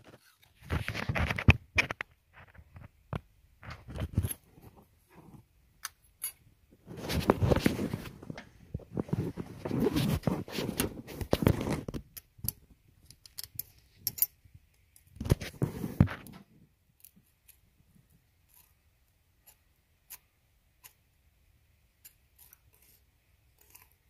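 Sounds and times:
hands rubbing and scraping metal: 6.2 - 12.0, 22.0 - 24.0.

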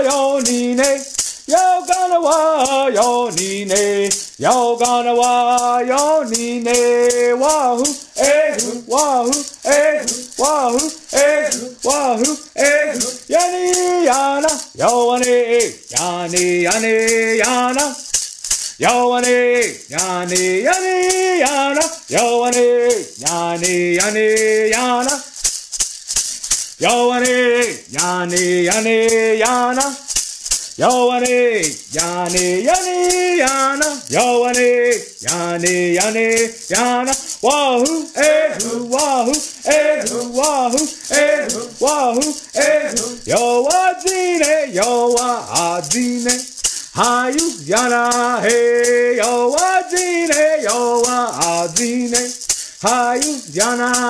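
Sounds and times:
man singing: 0.0 - 25.4, 26.7 - 54.0
hand rattle shaking: 0.0 - 54.0.

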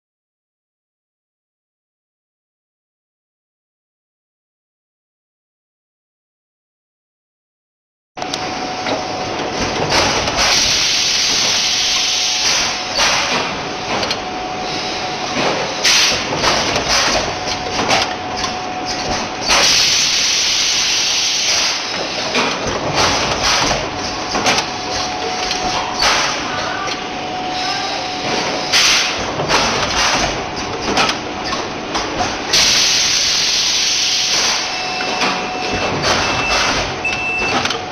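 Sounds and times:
machine high hum: 8.2 - 37.9.

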